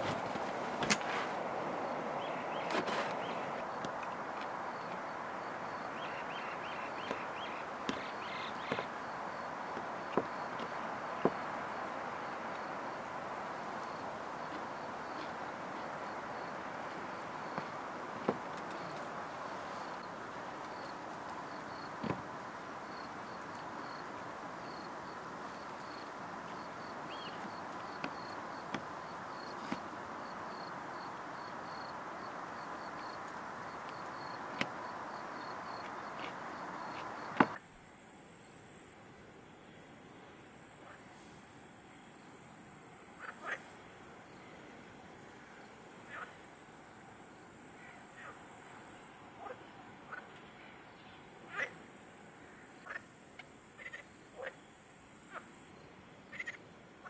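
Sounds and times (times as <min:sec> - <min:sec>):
cricket chirping: 0:00.8 - 0:57.0
frogs calling: 0:01.8 - 0:22.1, 0:43.0 - 0:44.6, 0:46.0 - 0:46.5, 0:47.7 - 0:55.6, 0:56.2 - 0:57.0.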